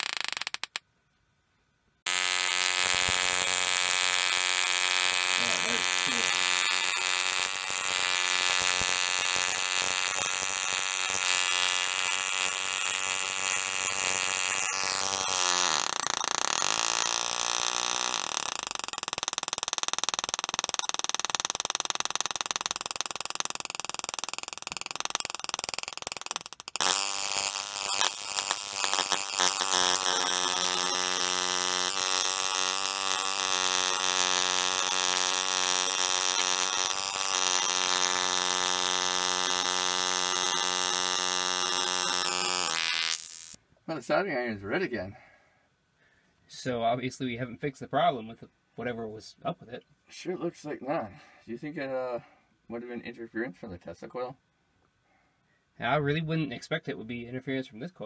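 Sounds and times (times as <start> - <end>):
tesla coil spark buzzing: 0.0 - 0.8, 2.0 - 43.6.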